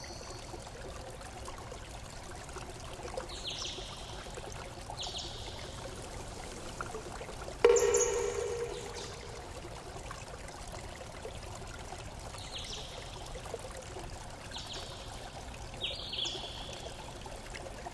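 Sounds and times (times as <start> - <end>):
running water: 0.0 - 17.9
brief high tones: 7.7 - 9.6.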